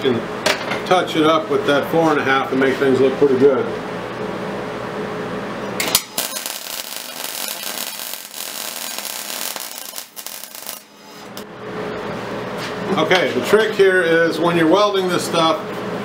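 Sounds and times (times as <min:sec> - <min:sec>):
welder arc crackling: 0:05.8 - 0:11.5.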